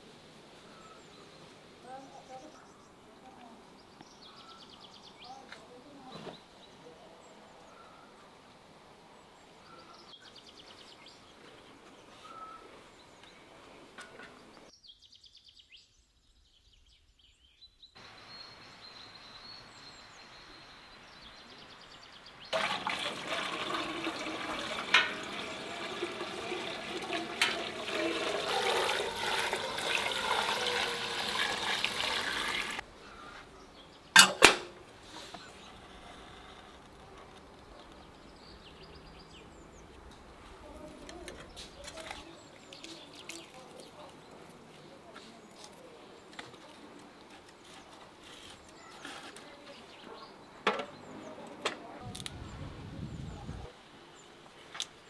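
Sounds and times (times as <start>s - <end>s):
faint bird chirps: 0.6s - 8.3s, 9.6s - 13.6s
water running: 22.6s - 32.8s, 41.8s - 44.6s
metal clanks: 24.8s - 25.4s, 34.2s - 34.8s.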